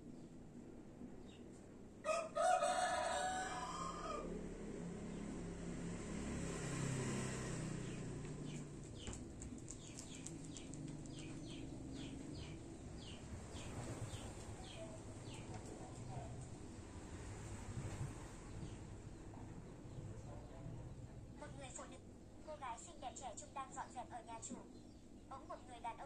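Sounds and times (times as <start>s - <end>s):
rooster crowing: 2.0s - 4.9s.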